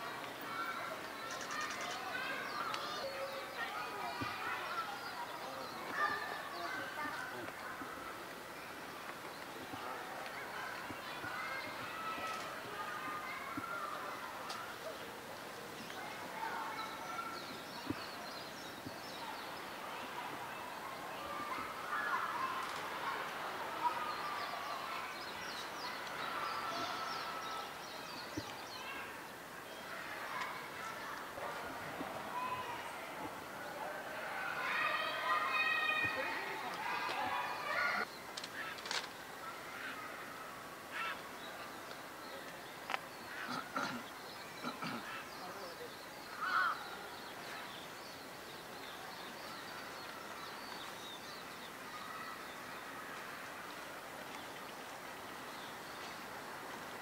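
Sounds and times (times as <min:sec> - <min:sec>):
outdoor background noise: 0:00.0 - 0:57.0
small birds chirping: 0:00.0 - 0:57.0.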